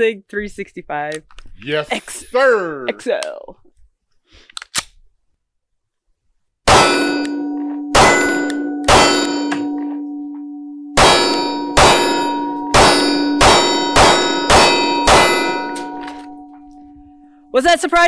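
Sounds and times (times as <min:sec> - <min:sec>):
pistol shots: 0:06.7 - 0:09.8, 0:11.0 - 0:16.4
steel target clanging: 0:06.7 - 0:17.4.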